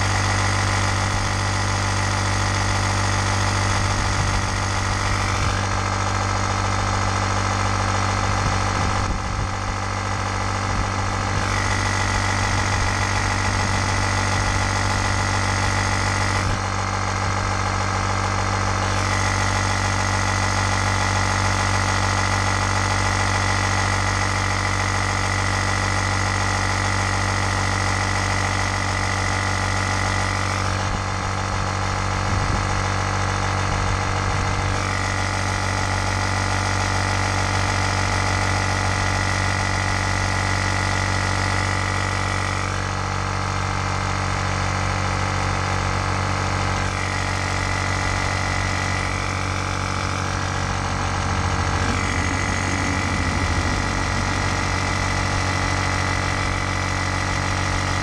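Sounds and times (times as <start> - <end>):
high whine: 0.0 - 22.3, 46.8 - 58.0
electric air pump humming: 46.9 - 58.0.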